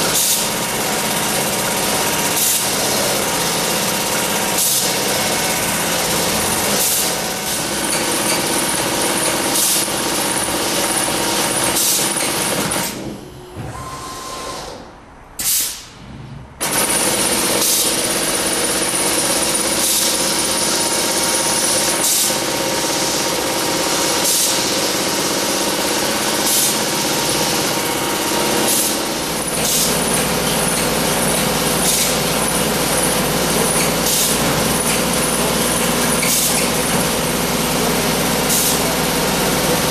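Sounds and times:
tufting machine running: 0.0s - 14.9s, 16.6s - 39.9s
sharp machine click: 15.4s - 16.0s.

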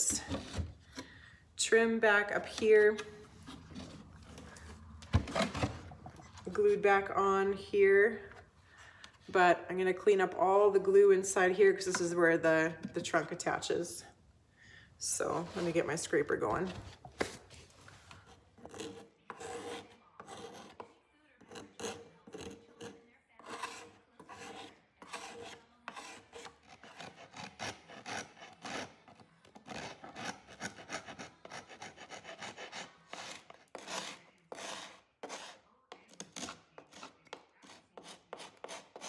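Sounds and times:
hand scraper scraping wood: 18.6s - 20.8s, 21.5s - 29.0s, 29.6s - 35.6s, 36.2s - 39.0s.

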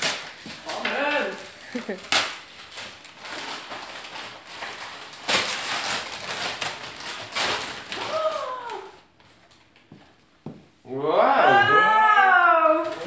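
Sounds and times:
wrapping paper tearing and crumpling: 0.0s - 9.7s.

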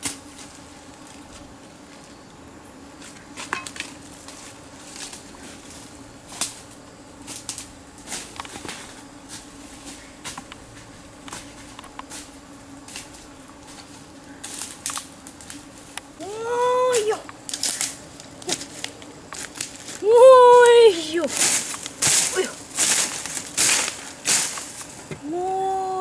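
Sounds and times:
brushing through undergrowth: 0.0s - 2.2s, 2.9s - 25.1s
faint hum: 0.0s - 26.0s
footsteps crunching through leaves: 3.0s - 15.9s, 16.8s - 25.1s
twigs snapping: 14.4s - 16.1s, 16.8s - 20.0s, 20.6s - 25.2s.

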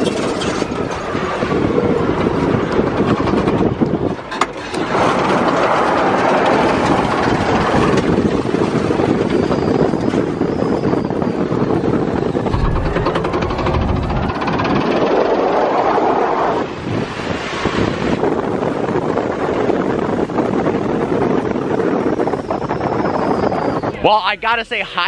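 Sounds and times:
wind rushing: 11.4s - 22.3s
sharp knock: 12.5s - 15.2s.

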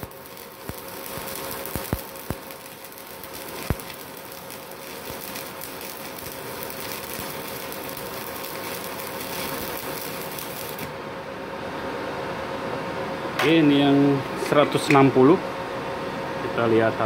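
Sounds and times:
welding arc crackling and sizzling: 0.0s - 11.1s.

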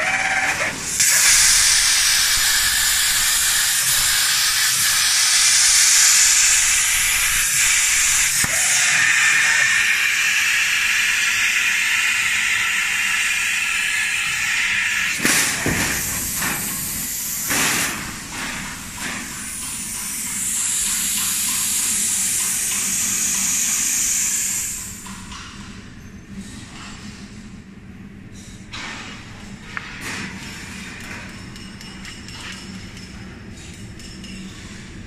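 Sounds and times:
plasma cutting torch hissing: 0.0s - 25.1s
high-pitched steady hiss: 1.0s - 15.2s.

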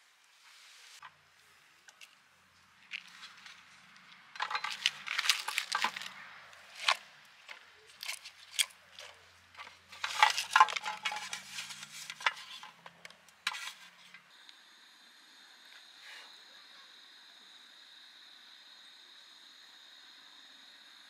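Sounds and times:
vegetables rustling in a pot: 2.8s - 14.2s.

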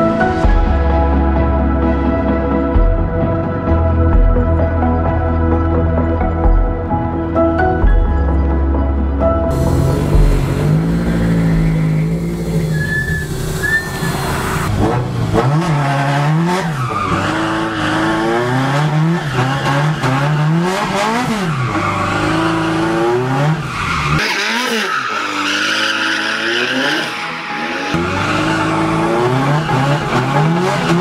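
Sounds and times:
race car engine revving: 9.5s - 31.0s
tires squealing: 9.6s - 31.0s.

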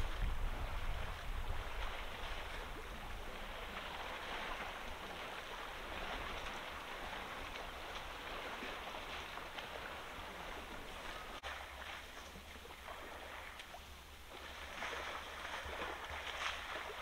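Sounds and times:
wind rumble on microphone: 0.0s - 13.6s
elephants splashing in water: 0.0s - 17.0s
water washing: 0.0s - 17.0s.

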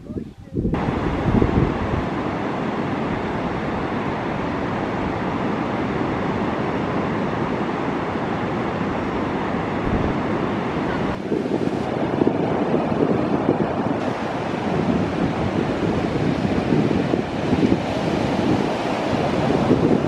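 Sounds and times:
wind on the microphone: 0.0s - 20.0s
surf breaking on a beach: 0.6s - 20.0s
river water rushing over stones: 14.0s - 20.0s.

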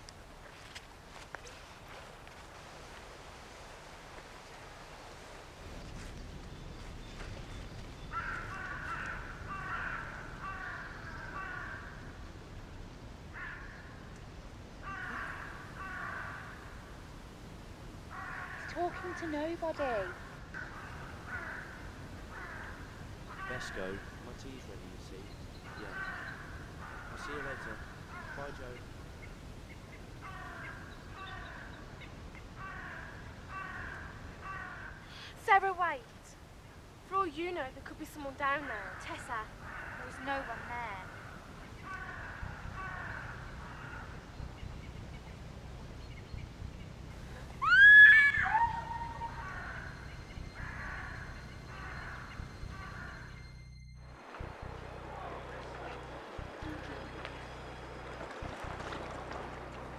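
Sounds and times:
small birds chirping: 5.7s - 12.0s, 18.2s - 33.0s
crows cawing: 8.1s - 12.2s, 13.3s - 14.1s, 14.8s - 17.0s, 18.1s - 24.6s, 25.6s - 28.9s, 30.2s - 35.3s, 38.5s - 44.4s, 47.6s - 53.4s.

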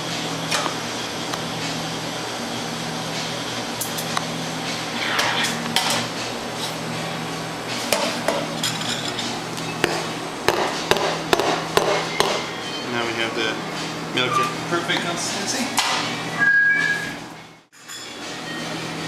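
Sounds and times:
machine hum: 0.0s - 14.2s.

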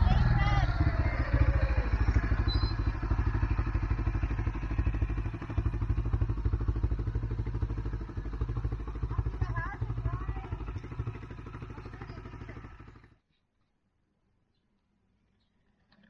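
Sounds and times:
vehicle engine idling: 0.0s - 13.2s.

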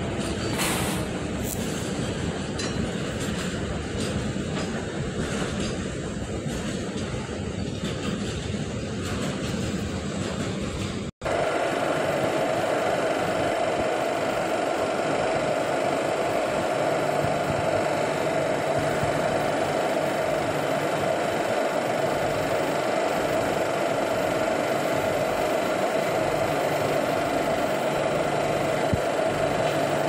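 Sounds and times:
locomotive idling: 11.2s - 30.0s.

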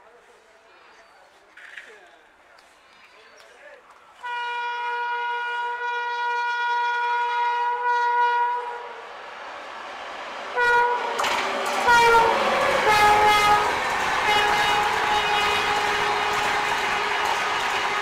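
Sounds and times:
train air horn blasts: 4.2s - 9.0s, 10.5s - 18.0s
train passing at speed: 4.8s - 18.0s.

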